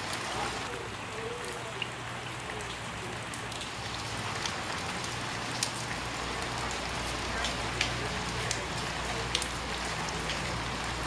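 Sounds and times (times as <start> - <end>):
rain falling on puddle: 0.0 - 11.0.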